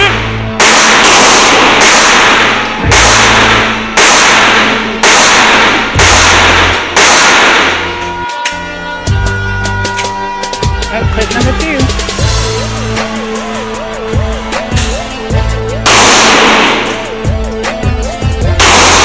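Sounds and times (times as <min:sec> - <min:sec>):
background music with a beat: 0:00.0 - 0:19.0
pistol shots ringing indoors: 0:00.6 - 0:08.0, 0:15.8 - 0:17.1, 0:18.6 - 0:19.0.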